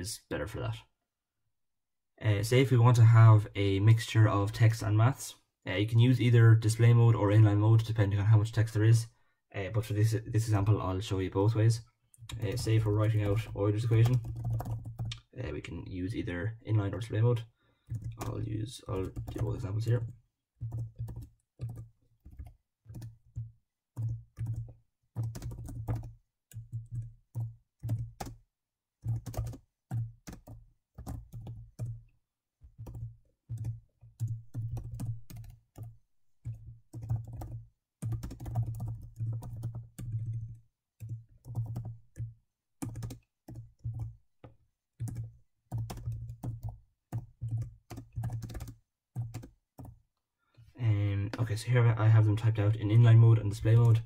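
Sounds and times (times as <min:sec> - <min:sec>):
computer keyboard typing: 0:12.3 - 0:15.3, 0:17.8 - 0:28.4, 0:29.0 - 0:32.0, 0:32.6 - 0:50.0.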